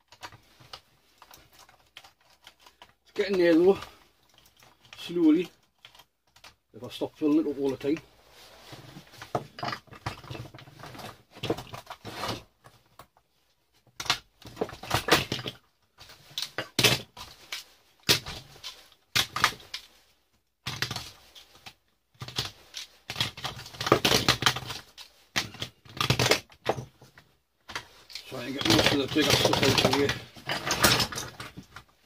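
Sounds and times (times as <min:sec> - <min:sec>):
plastic parts clattering onto bench: 0:09.2 - 0:12.4, 0:13.9 - 0:19.9, 0:22.2 - 0:31.9
plastic covers snapping off: 0:13.9 - 0:19.9, 0:20.7 - 0:26.8.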